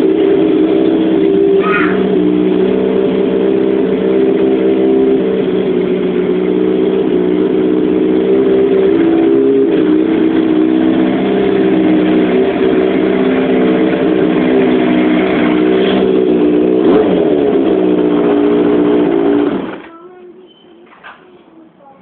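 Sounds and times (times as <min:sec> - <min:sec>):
motorcycle engine idling: 0:00.0 - 0:22.0.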